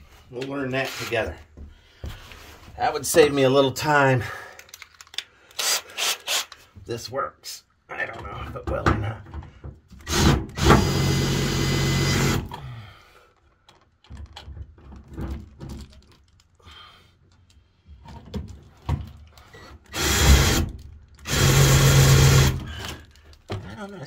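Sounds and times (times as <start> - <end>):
drill driving screw into steel: 5.6 - 6.5, 10.0 - 12.5, 19.9 - 22.7.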